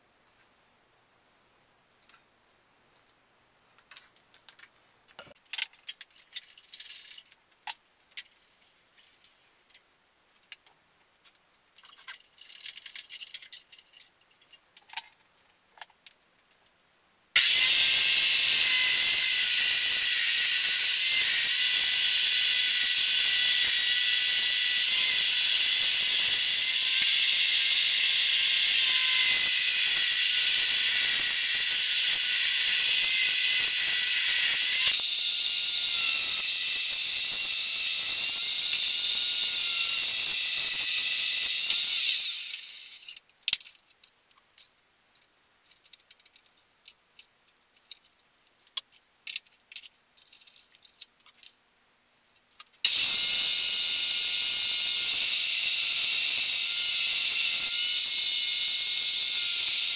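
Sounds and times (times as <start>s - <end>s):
table saw running: 17.4s - 43.0s, 52.9s - 59.9s.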